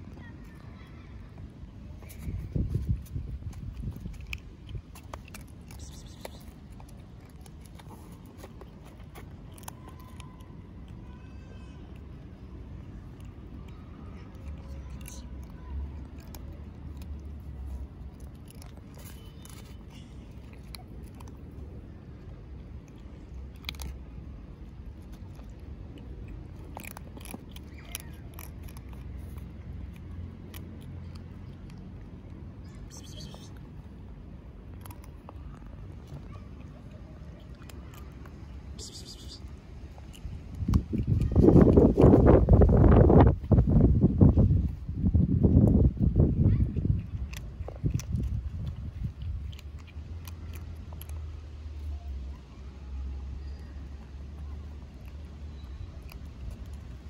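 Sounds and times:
kittens crunching dry kibble: 0.0s - 57.0s.

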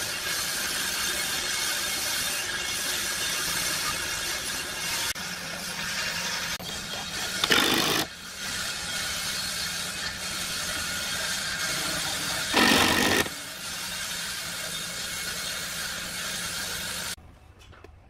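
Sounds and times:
cordless drill into wood: 7.4s - 8.1s, 12.5s - 13.3s.

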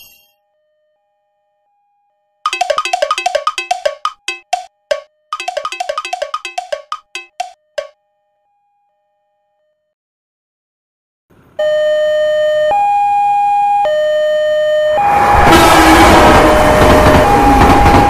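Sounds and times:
railroad crossing two-tone alarm: 0.0s - 9.9s, 11.6s - 18.0s
train rushing: 15.1s - 18.0s.

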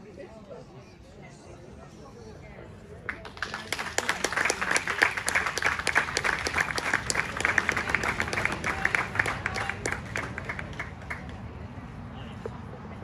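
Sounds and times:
audience applauding: 3.2s - 11.4s.

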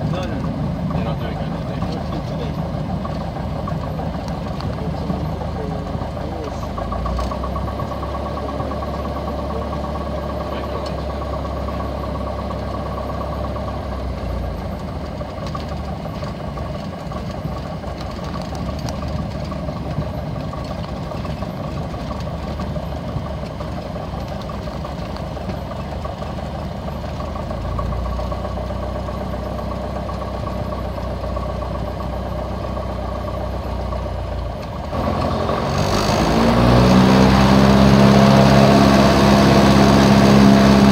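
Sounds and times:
piston engine and propeller running: 0.0s - 40.9s.

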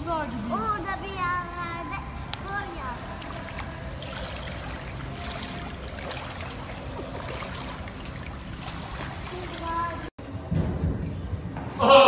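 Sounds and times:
pool water splashing: 2.0s - 10.1s.

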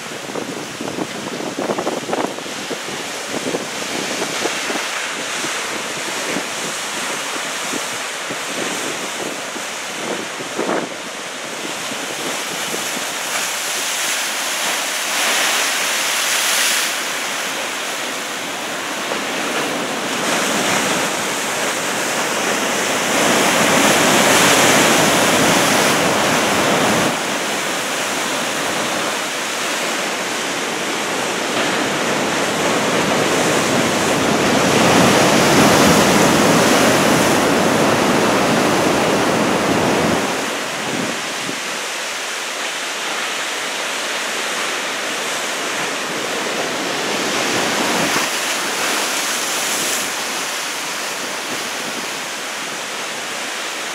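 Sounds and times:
wind buffeting microphone: 0.0s - 13.8s, 18.1s - 42.0s
surf breaking and washing in: 0.0s - 53.9s.

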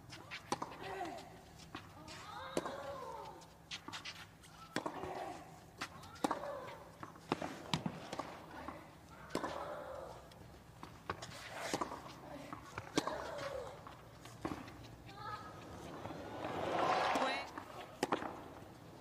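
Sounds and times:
racket hitting tennis ball: 4.7s - 10.2s, 10.8s - 18.6s.

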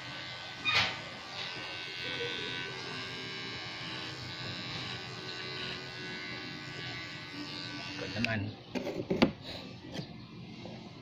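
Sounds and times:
electric hair clipper buzzing: 0.0s - 8.4s.

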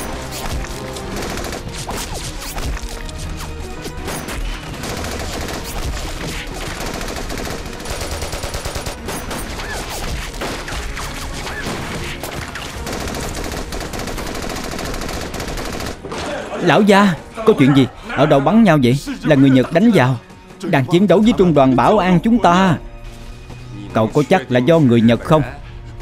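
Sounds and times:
dense continuous gunfire: 0.0s - 16.1s.

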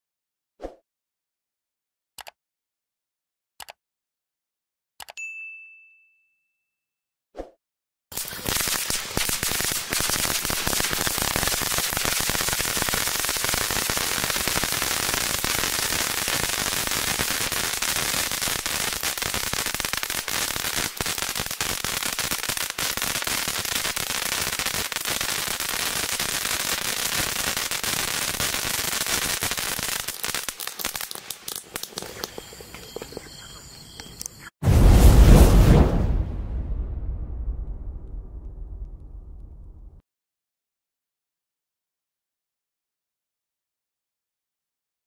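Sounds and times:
firework fountain hissing and crackling: 8.2s - 32.7s.

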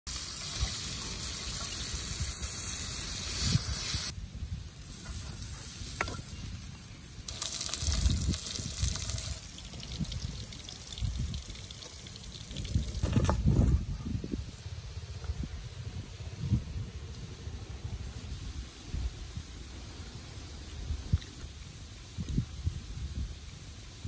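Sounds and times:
steady hiss: 0.1s - 9.6s.

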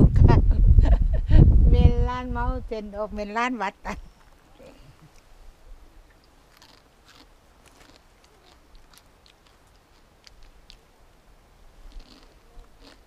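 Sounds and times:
crunching dry noodles: 6.2s - 10.9s, 11.9s - 13.0s.

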